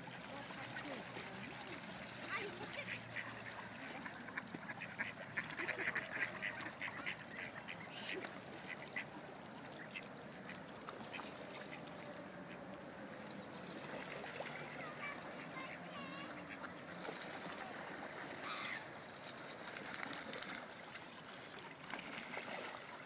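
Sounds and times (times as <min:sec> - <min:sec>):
ducks quacking: 0:00.4 - 0:09.1, 0:14.8 - 0:17.2, 0:18.4 - 0:18.9.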